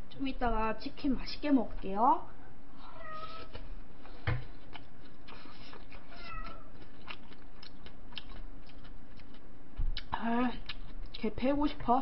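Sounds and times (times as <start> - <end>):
cat meowing: 2.8 - 3.6, 6.1 - 6.8.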